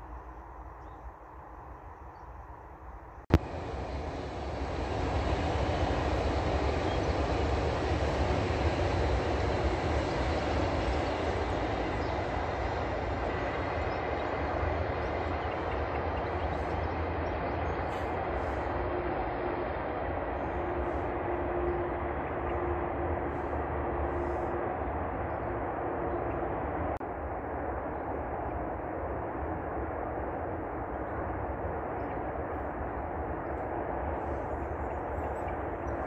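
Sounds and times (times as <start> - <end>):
train wheels rumbling on track: 3.3 - 27.1, 30.7 - 36.0.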